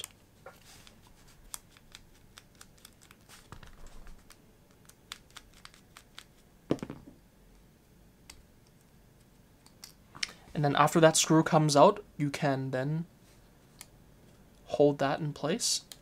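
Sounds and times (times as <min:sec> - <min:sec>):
fingers handling small parts: 0:00.0 - 0:06.4.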